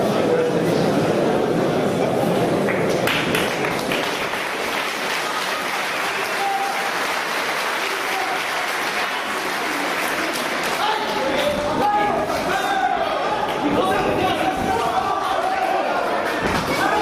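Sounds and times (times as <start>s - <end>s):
crowd applauding: 2.6s - 11.6s.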